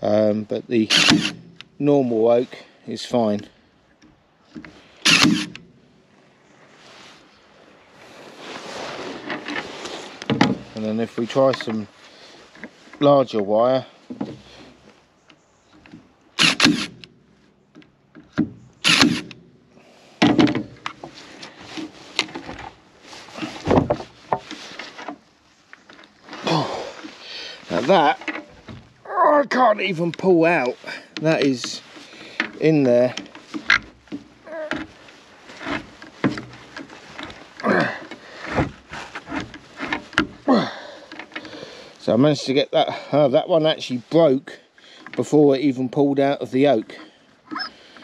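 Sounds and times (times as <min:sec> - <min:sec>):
stapler firing into wood: 0:00.9 - 0:01.4, 0:05.1 - 0:05.6, 0:16.4 - 0:17.0, 0:18.8 - 0:19.4
cable being yanked strained: 0:05.1 - 0:05.7, 0:16.4 - 0:17.1, 0:47.5 - 0:48.0.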